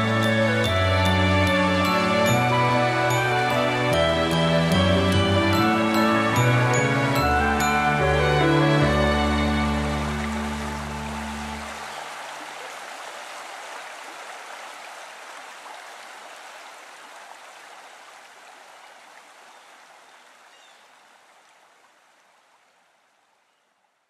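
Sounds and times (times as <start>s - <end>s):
song held notes: 0.0s - 11.7s
stream babbling: 0.0s - 23.5s.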